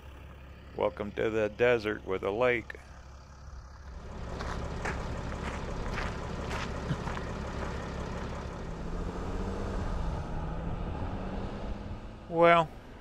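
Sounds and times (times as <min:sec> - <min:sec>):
vehicle engine hum with road noise: 0:00.0 - 0:13.0.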